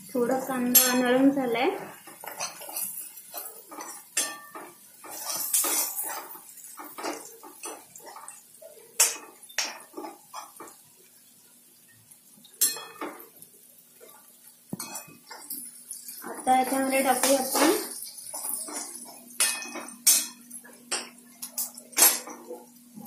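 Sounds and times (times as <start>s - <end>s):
metal spoon scraping a pan: 2.1s - 10.8s, 14.0s - 22.6s.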